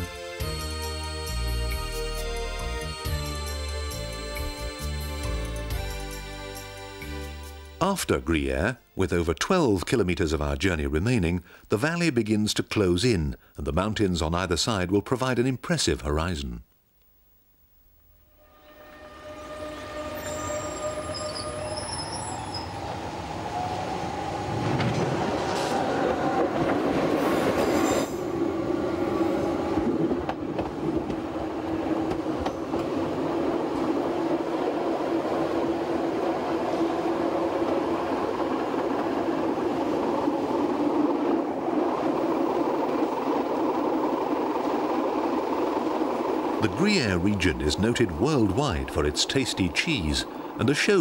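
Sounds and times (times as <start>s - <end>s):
electric train running: 18.4s - 51.0s.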